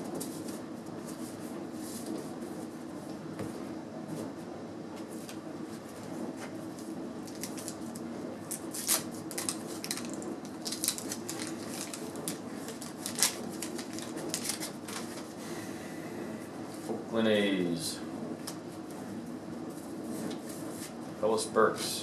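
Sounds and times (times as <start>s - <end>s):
wax paper wrapper tearing: 7.2s - 15.2s.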